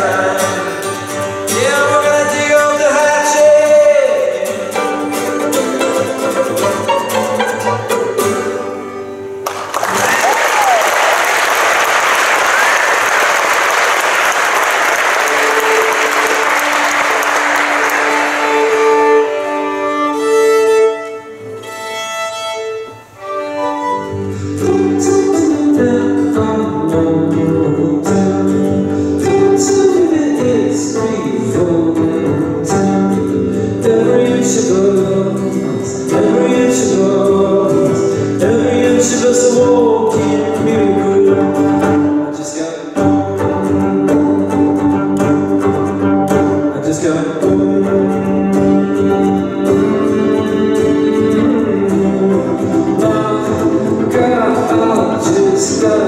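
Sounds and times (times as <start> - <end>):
guitar playing: 0.0 - 56.0
bowed violin: 4.7 - 9.3, 15.2 - 26.0
audience applause: 9.4 - 19.4.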